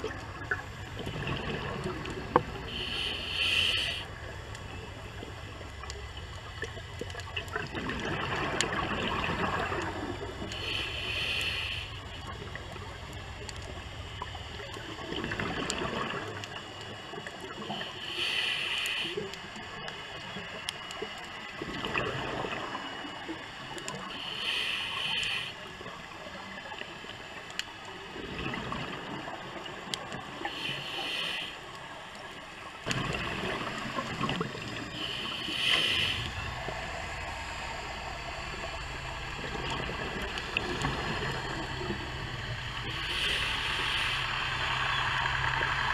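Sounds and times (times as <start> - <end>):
exhaust bubbles burbling: 0.0 - 2.7, 6.6 - 10.4, 15.0 - 16.5, 32.8 - 34.9, 38.5 - 43.8
regulator air hiss: 2.6 - 4.3, 10.4 - 12.3, 17.6 - 19.6, 24.0 - 25.7, 30.3 - 32.0, 34.8 - 39.3, 41.8 - 45.9.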